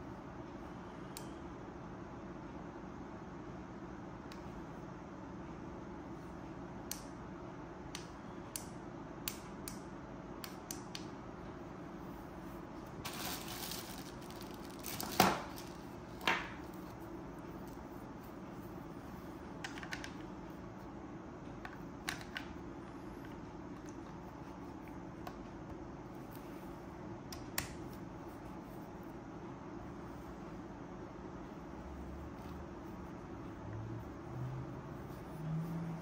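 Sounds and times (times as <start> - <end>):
low room hum: 0.0 - 36.0
plastic bag crinkling: 13.0 - 15.8.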